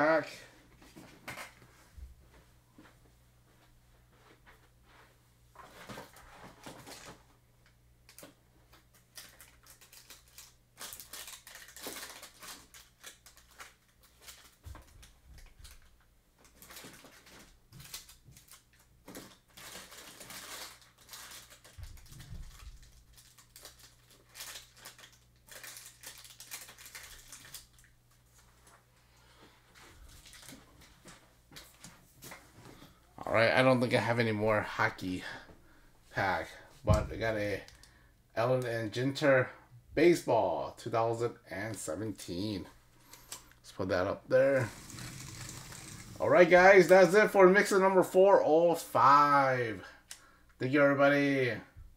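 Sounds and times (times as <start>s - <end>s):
foil packs crinkling: 8.1s - 28.5s, 30.0s - 30.9s, 44.4s - 47.1s.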